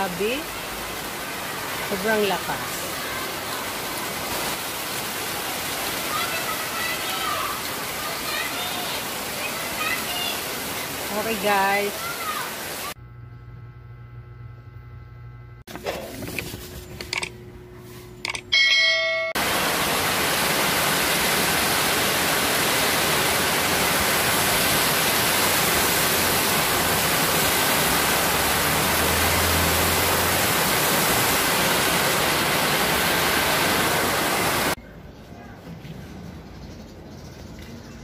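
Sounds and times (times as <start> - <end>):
heavy rain on a plastic roof: 0.0 - 13.0, 19.4 - 34.8.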